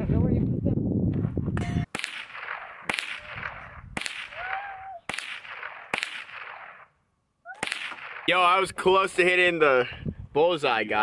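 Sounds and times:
handgun shots echoing: 1.9s - 4.5s, 5.1s - 6.9s, 7.6s - 8.3s.

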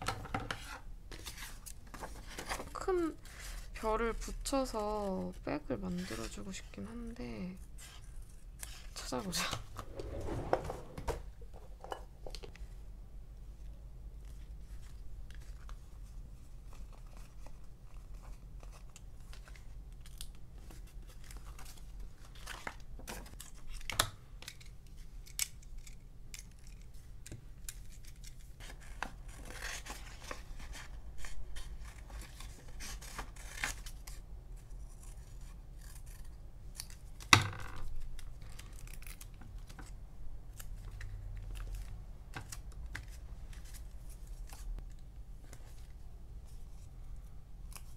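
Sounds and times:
scissors snipping paper: 31.6s - 37.3s.

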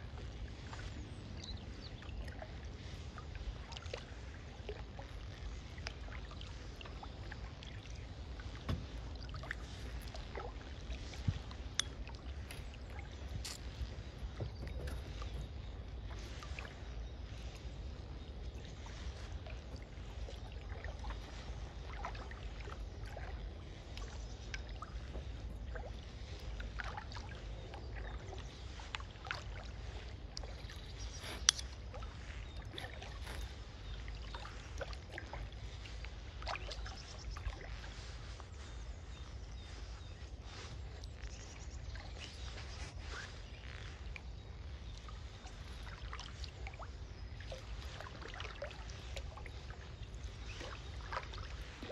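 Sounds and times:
paddle dips and drips: 0.0s - 51.9s.

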